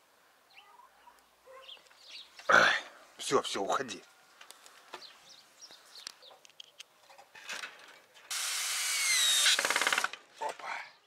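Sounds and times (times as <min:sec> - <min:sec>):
faint clicks and rustles: 0:04.0 - 0:08.3
drill motor whine: 0:08.3 - 0:09.8
drill clutch clicking: 0:08.3 - 0:10.2.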